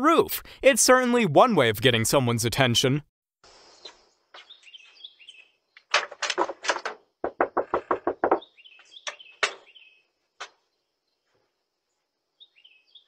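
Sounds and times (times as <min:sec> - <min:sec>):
birds chirping: 0:03.6 - 0:05.9, 0:07.8 - 0:13.0
knocking on door: 0:06.7 - 0:08.6.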